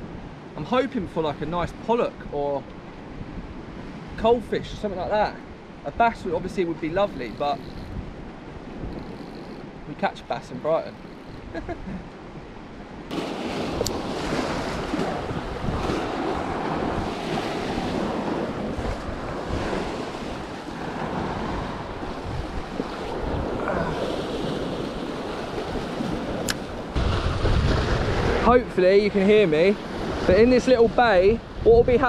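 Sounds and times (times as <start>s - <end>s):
wind buffeting microphone: 2.8s - 9.9s, 10.8s - 32.0s
surf breaking over rocks: 13.1s - 31.1s
sharp click: 26.4s - 26.7s.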